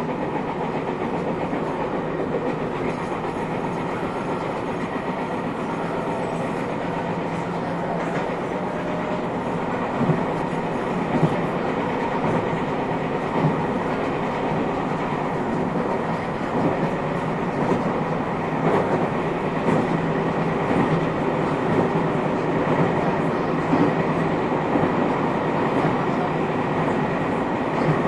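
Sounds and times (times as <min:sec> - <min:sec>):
train wheel clacks: 0:00.0 - 0:28.0
wheels rumbling on rail: 0:00.0 - 0:28.0.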